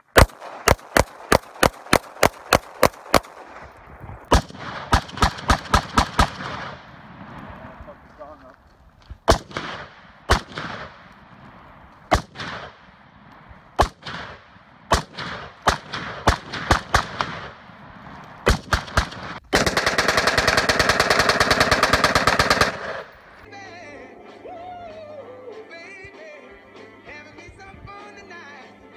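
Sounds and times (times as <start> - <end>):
automatic gunfire: 0.0 - 7.0, 9.3 - 11.1, 12.1 - 13.2, 13.8 - 17.7, 18.4 - 23.4
rifle shots echoing: 0.0 - 8.4, 9.2 - 23.5.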